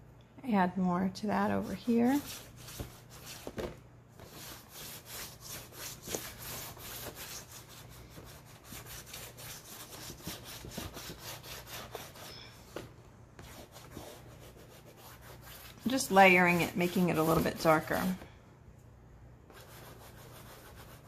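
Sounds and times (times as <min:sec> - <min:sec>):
chalk scraping on board: 0:01.6 - 0:03.6, 0:04.2 - 0:12.3, 0:13.4 - 0:18.1, 0:19.5 - 0:21.0.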